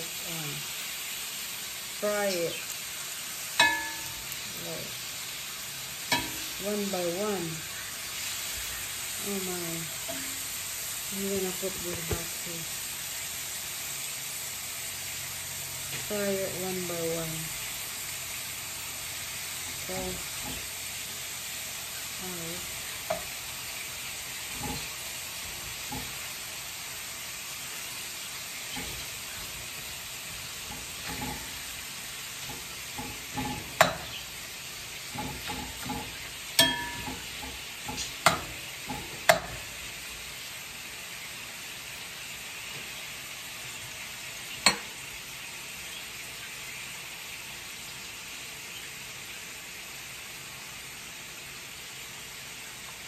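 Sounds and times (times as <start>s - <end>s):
beef sizzling in a skillet: 0.0s - 53.0s
metal utensils clinking on pan: 3.6s - 4.4s, 6.1s - 6.8s, 10.0s - 10.4s, 24.5s - 25.0s, 30.6s - 31.7s, 32.4s - 34.2s, 35.1s - 39.7s.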